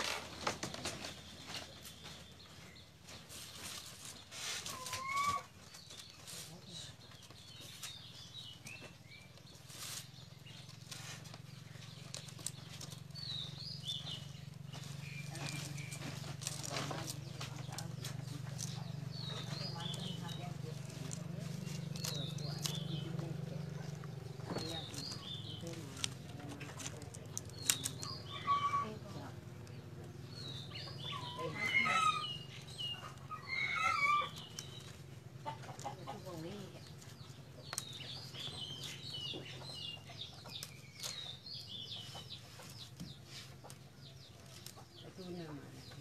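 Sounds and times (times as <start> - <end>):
bamboo strips clicking and rustling: 0.0 - 30.6, 34.0 - 45.2
birds chirping: 0.0 - 46.0
low voices: 12.8 - 40.3
bamboo strips clicking: 25.9 - 28.2, 36.9 - 38.9.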